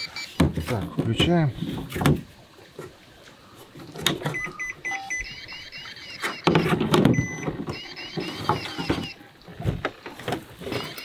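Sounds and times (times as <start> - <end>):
short electronic beeps: 0.0 - 0.4, 4.3 - 9.2, 10.7 - 11.0
handling knocks and rustles: 6.2 - 11.0.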